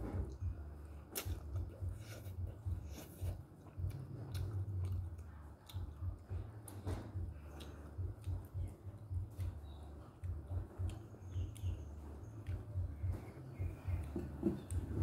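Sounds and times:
person chewing noodles: 0:00.2 - 0:15.0
sharp mouth clicks: 0:01.1 - 0:14.8.

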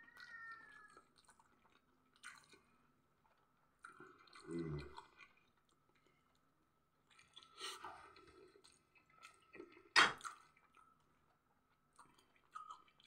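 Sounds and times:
person chewing: 0:00.9 - 0:06.4, 0:07.0 - 0:11.1, 0:11.9 - 0:13.0.

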